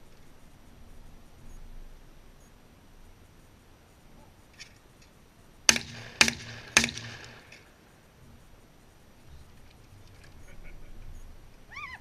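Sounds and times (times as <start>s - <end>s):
shotgun shots: 5.7s - 7.8s.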